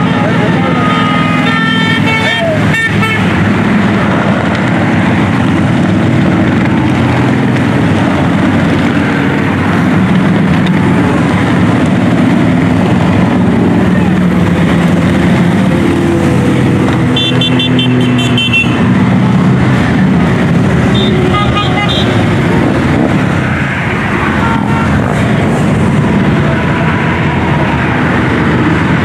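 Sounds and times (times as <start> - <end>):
motorcycles passing: 0.0 - 29.0.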